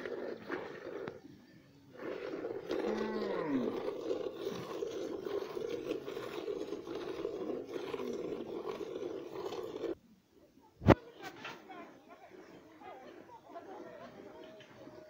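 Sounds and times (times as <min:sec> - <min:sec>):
milk squirting into plastic bucket: 0:02.0 - 0:10.0
cow mooing: 0:02.7 - 0:04.5.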